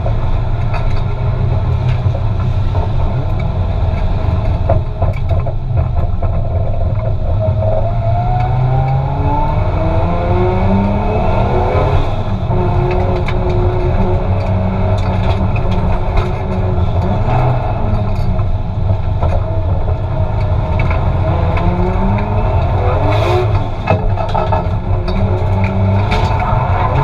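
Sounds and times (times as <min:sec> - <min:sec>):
turbocharged engine revving: 0:07.6 - 0:18.6, 0:19.2 - 0:27.0.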